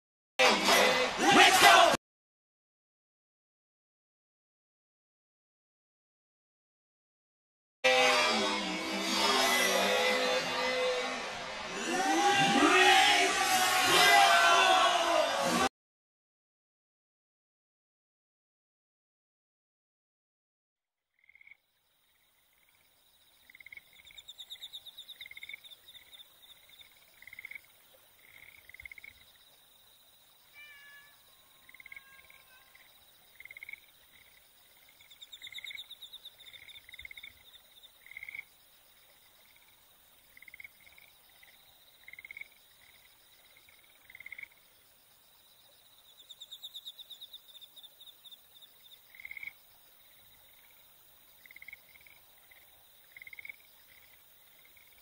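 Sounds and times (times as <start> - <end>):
frogs calling: 21.2 - 55.0
high insect trilling: 22.2 - 55.0.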